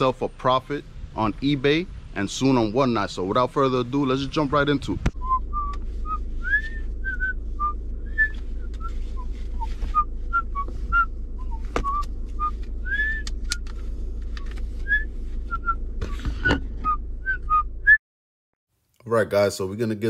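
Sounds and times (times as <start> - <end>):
steady low hum: 0.0 - 18.0
man whistling a tune: 5.2 - 13.6, 14.8 - 15.8.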